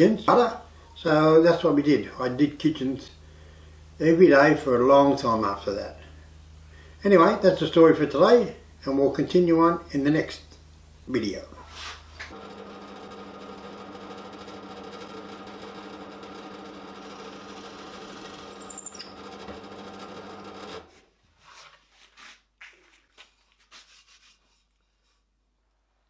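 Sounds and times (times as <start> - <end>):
drill press boring into wood: 12.3 - 20.9.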